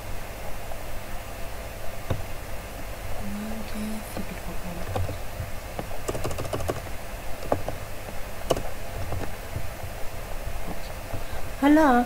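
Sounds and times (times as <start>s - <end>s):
steady low hum: 0.0s - 12.0s
keyboard keys clicking: 5.8s - 7.8s, 8.5s - 9.3s.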